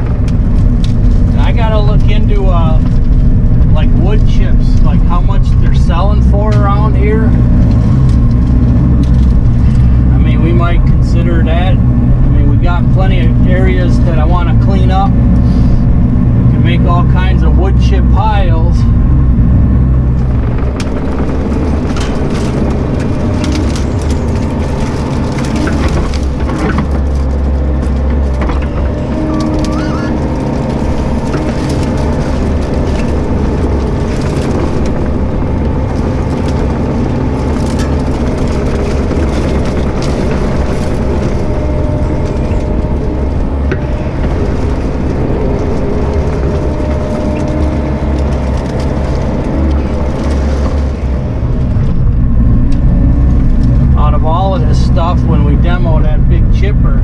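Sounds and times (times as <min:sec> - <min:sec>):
excavator diesel engine running: 0:00.0 - 0:57.0
branches cracking and snapping: 0:06.5 - 0:10.1, 0:19.9 - 0:54.4.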